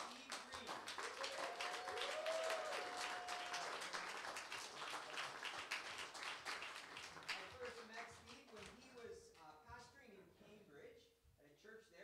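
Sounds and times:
congregation clapping: 0.0 - 9.0.

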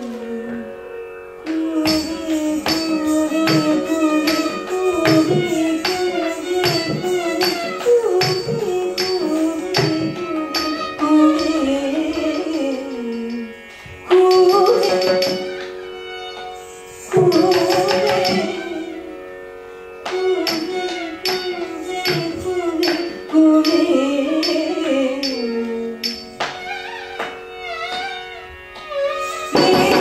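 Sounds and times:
sharp percussion strokes: 29.0 - 30.0.

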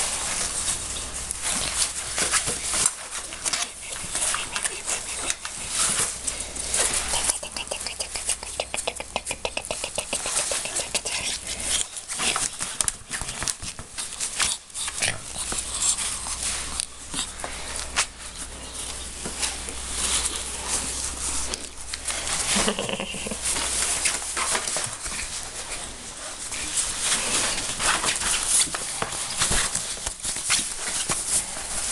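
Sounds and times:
ferret chuckling cluck: 7.0 - 11.1, 22.3 - 23.6.

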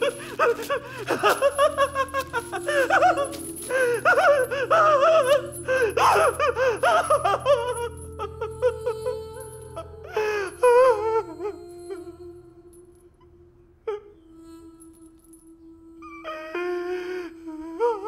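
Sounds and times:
man laughing wildly: 0.0 - 8.8
low music score: 0.0 - 18.0.

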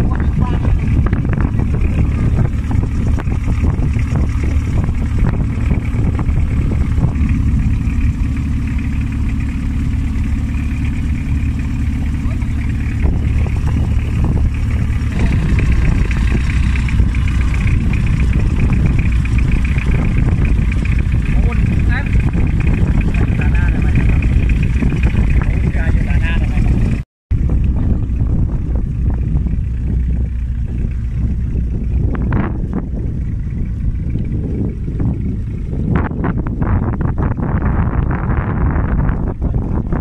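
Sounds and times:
motorboat engine running: 0.0 - 40.0.

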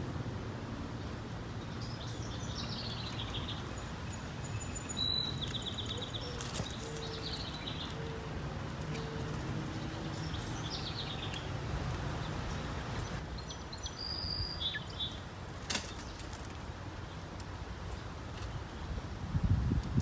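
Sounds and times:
bird chirps: 1.6 - 8.3, 8.9 - 15.3.

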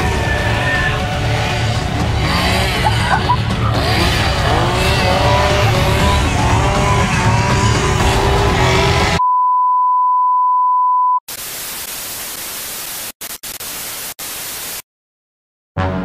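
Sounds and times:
music: 0.0 - 9.2, 15.8 - 16.0
chainsaw engine running: 0.2 - 9.2
static hiss: 11.3 - 14.8.

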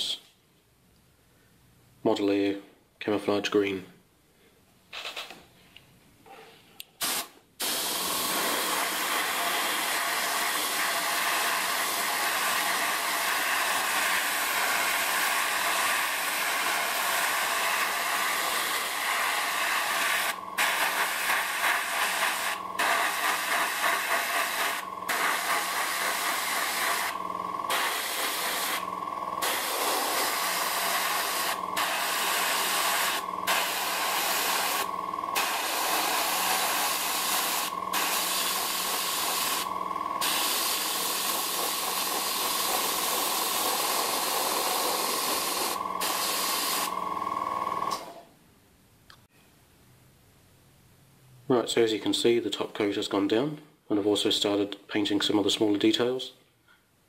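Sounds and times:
airbrush spraying hiss: 6.9 - 46.9.

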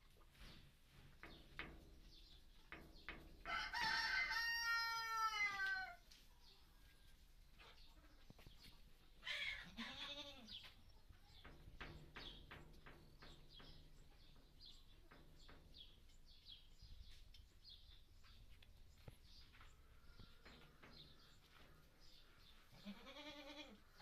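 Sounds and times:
goat bleating: 9.2 - 10.5, 22.7 - 23.8.

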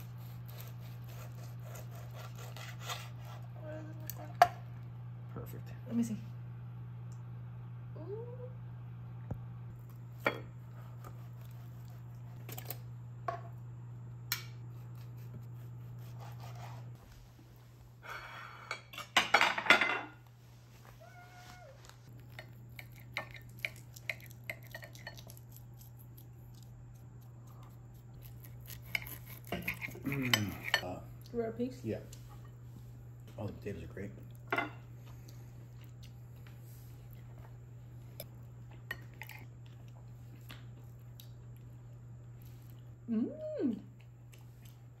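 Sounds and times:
plates and cutlery clattering: 18.2 - 20.2
knife and fork on ceramic plate: 28.2 - 30.9.

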